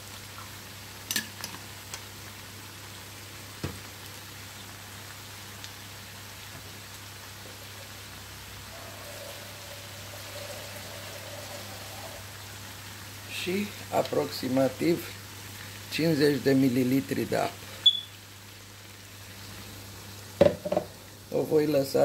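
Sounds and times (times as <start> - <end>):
food sizzling in a frying pan: 0.0 - 22.0.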